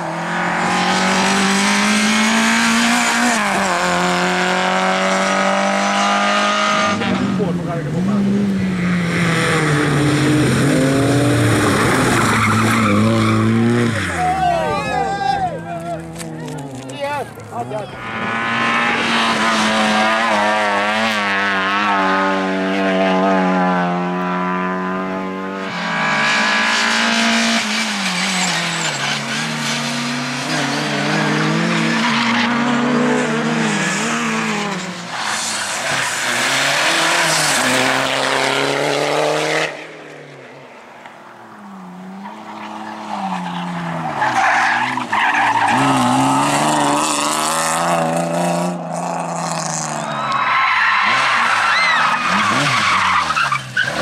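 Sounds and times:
rally car engines revving: 0:00.0 - 0:54.0
tyres skidding: 0:00.0 - 0:54.0.

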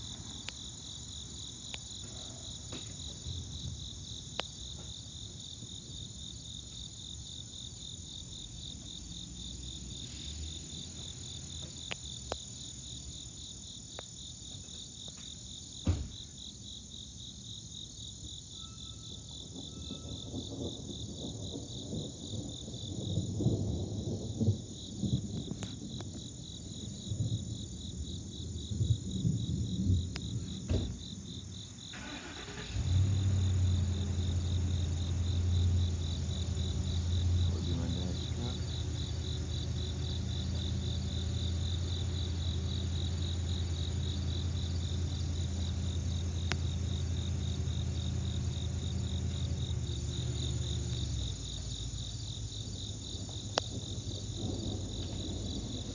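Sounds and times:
insects chirping: 0:00.0 - 0:55.9
distant thunder rumbling: 0:19.2 - 0:55.9.

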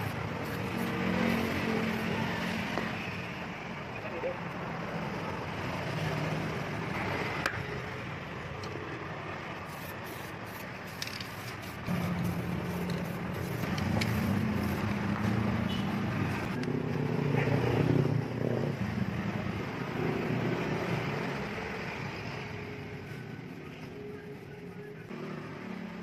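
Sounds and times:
aerosol spray can hissing: 0:09.7 - 0:14.9.

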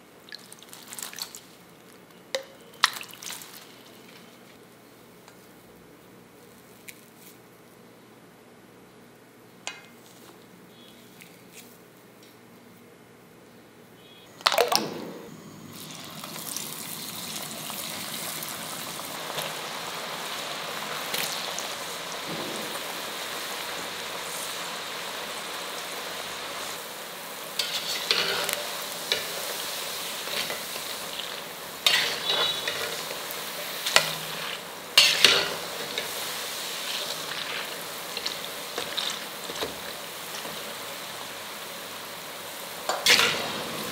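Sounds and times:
deep-frying sizzle: 0:14.4 - 0:43.9.

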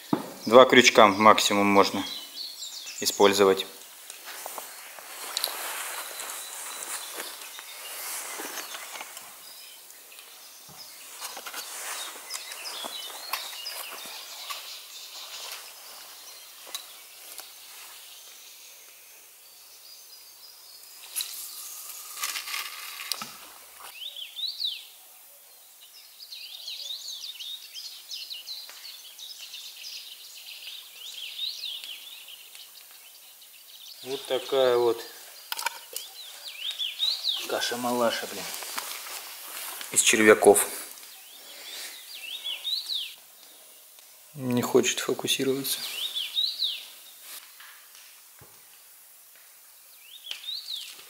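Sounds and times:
small birds chirping: 0:00.0 - 0:51.0
fishing rod cast rustling and clicks: 0:04.1 - 0:09.3, 0:21.0 - 0:23.5.

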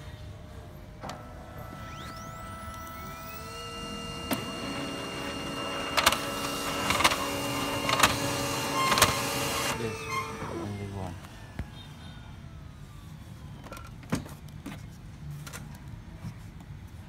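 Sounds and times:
laser printer motor running: 0:01.0 - 0:11.2
printer clacking as sheets feed: 0:03.6 - 0:10.4.

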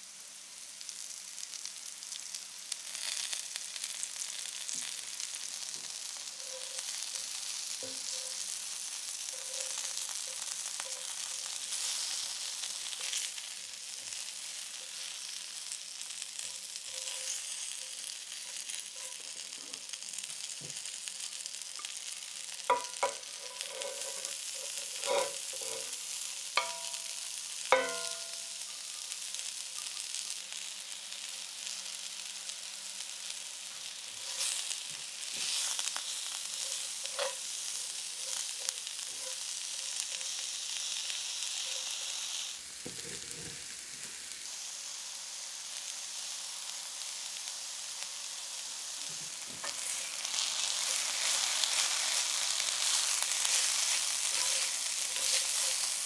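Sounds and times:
chicken sizzling in frying pan: 0:00.0 - 0:56.0
utensil knocking on pan: 0:22.7 - 0:24.0, 0:26.6 - 0:27.1, 0:27.7 - 0:28.4.

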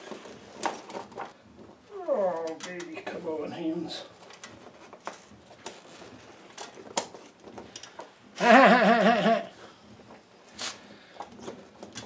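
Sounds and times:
tyre chain clinking and rattling: 0:00.0 - 0:01.4, 0:10.0 - 0:12.0
loud wavering voice: 0:08.4 - 0:09.5.

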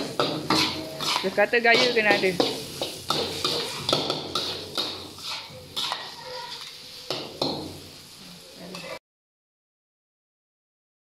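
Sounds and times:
metal utensils scraping a wok: 0:00.0 - 0:09.0.

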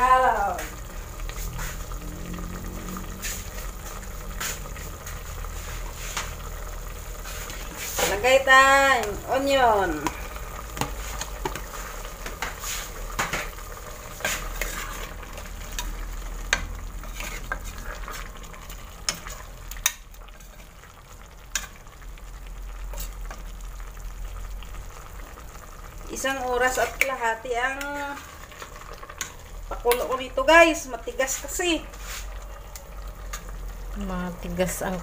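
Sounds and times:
sauce sizzling: 0:00.0 - 0:35.0
spatula scraping a metal pot: 0:14.1 - 0:18.3.

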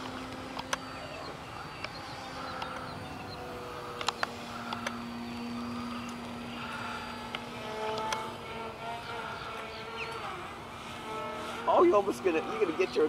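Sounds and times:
electric motors humming in flight: 0:00.0 - 0:13.0
sharp clicks: 0:01.8 - 0:03.0, 0:03.9 - 0:06.3.

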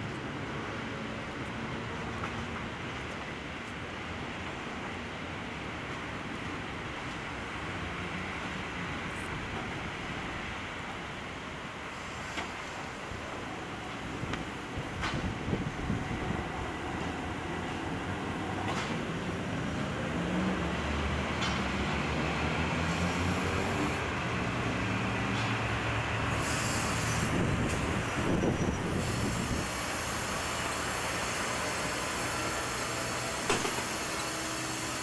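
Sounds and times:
electric tram running: 0:00.0 - 0:35.0
tram wheels squealing on rails: 0:10.9 - 0:35.0
sharp click: 0:33.5 - 0:33.9.

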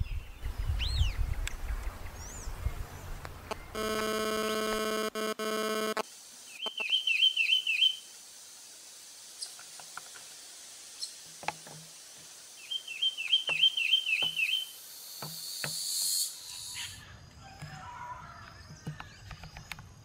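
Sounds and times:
small songbird singing: 0:00.0 - 0:03.8, 0:06.5 - 0:08.1, 0:12.5 - 0:17.0.

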